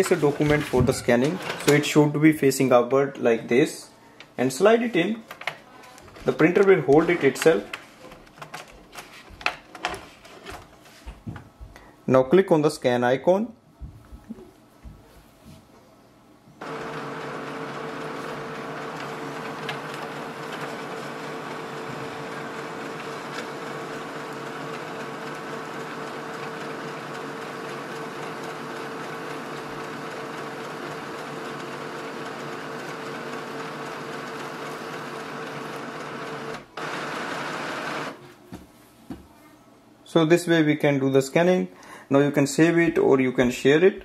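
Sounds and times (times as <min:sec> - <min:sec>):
scanner whirring: 0:16.6 - 0:38.2.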